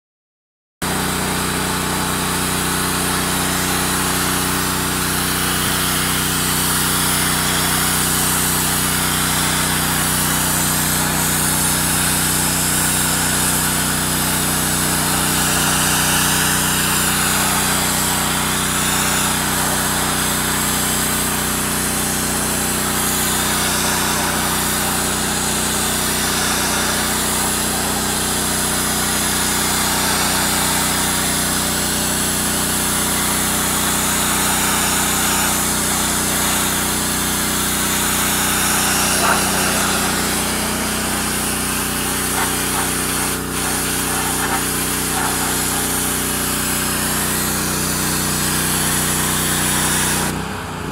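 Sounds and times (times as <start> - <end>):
blasting machine humming: 1.0 - 50.7
blasting jet hissing: 7.2 - 47.8.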